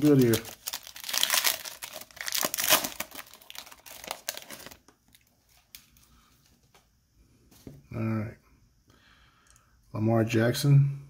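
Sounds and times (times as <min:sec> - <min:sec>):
foil pack tearing and crinkling: 0:00.0 - 0:04.9.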